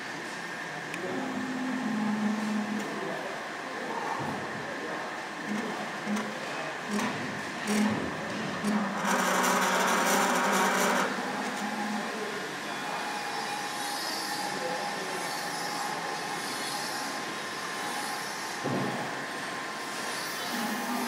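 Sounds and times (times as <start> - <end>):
sewing machine running: 6.9 - 8.0, 8.6 - 11.6.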